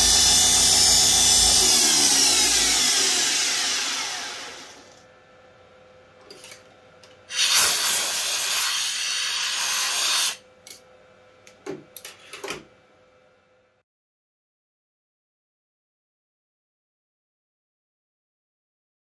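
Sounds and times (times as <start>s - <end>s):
engraving spindle winding down: 0.0s - 5.0s.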